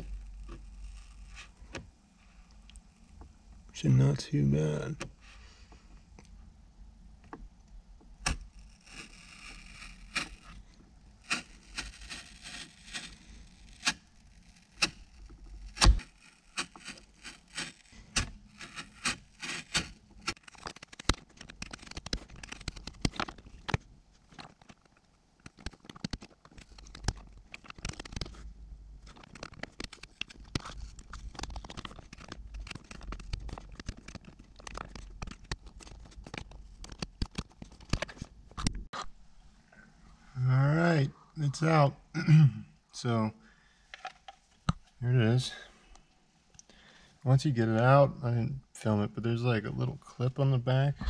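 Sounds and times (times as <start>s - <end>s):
razor blade scraping hard plastic: 8.2s - 10.6s, 11.2s - 23.7s, 29.1s - 38.0s.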